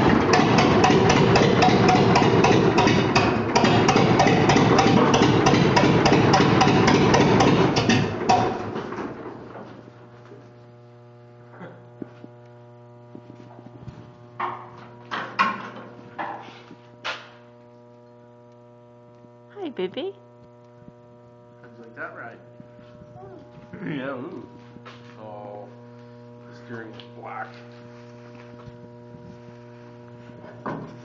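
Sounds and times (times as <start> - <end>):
tractor engine running: 0.0 - 10.2
steady electrical hum: 0.0 - 31.0.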